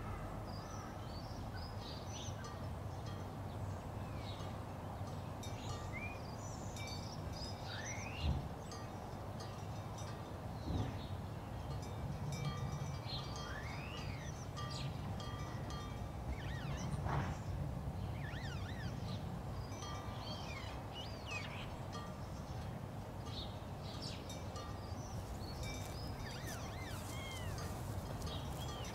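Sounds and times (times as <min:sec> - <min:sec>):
birds chirping: 0:00.0 - 0:09.6, 0:12.6 - 0:28.9
wind chimes tinkling: 0:11.7 - 0:17.0, 0:18.3 - 0:28.9.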